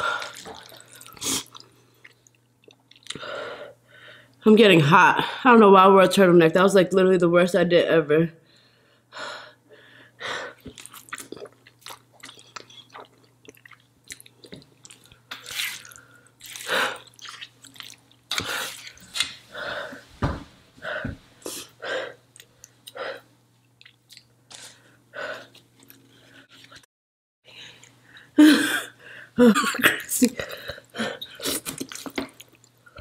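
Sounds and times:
person slurping and chewing noodles: 0:00.0 - 0:03.2, 0:10.6 - 0:19.3.

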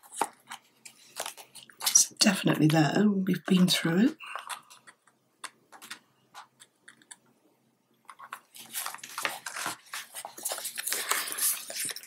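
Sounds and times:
paper pages rustling: 0:00.0 - 0:02.0, 0:08.1 - 0:12.0.

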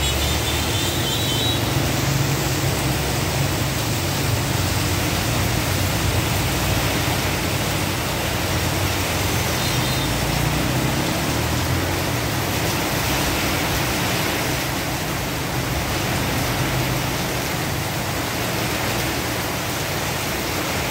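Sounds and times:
heavy rain on flooded street: 0:00.0 - 0:20.9
motor scooters riding through water: 0:00.0 - 0:20.9.

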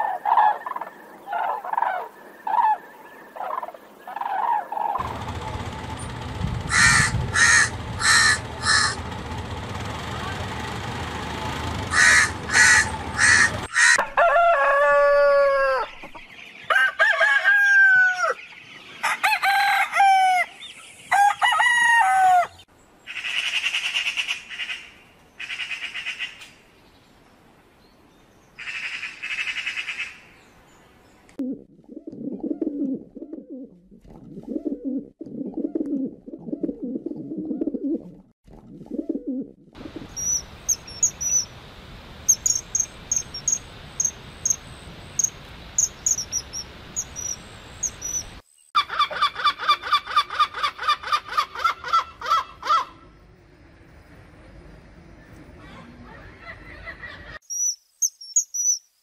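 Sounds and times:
low clucking: 0:06.3 - 0:09.9
crow cawing: 0:06.7 - 0:09.0, 0:11.9 - 0:14.0
magpie chatter: 0:06.7 - 0:09.0, 0:11.9 - 0:14.0
rooster crowing: 0:06.7 - 0:09.0, 0:11.9 - 0:16.1, 0:16.7 - 0:18.4, 0:19.0 - 0:22.7
rapid high chirps: 0:40.0 - 0:48.4.

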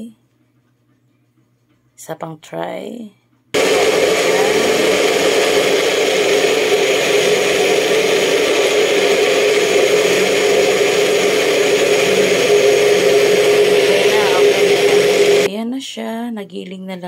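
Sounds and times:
blender motor grinding: 0:03.6 - 0:15.5.

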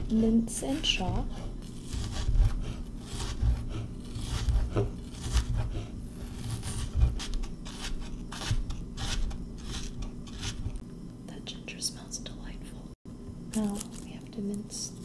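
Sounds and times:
knife chopping on cutting board: 0:00.0 - 0:10.8.

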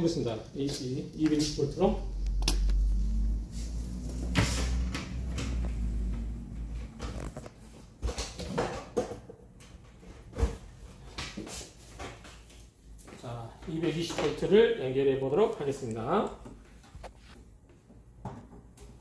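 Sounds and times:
low rumble: 0:01.9 - 0:07.0.

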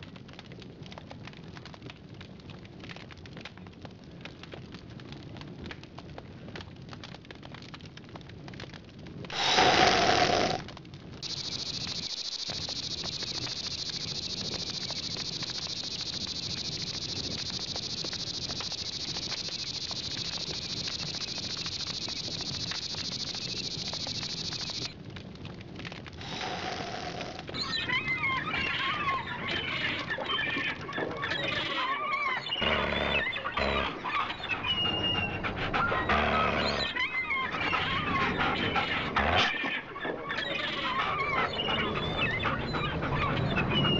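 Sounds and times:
campfire crackling: 0:00.0 - 0:31.2
steady high-pitched hiss: 0:09.3 - 0:10.6, 0:11.2 - 0:25.0, 0:26.2 - 0:27.7
high warbling chirps and squeals: 0:11.2 - 0:24.9.

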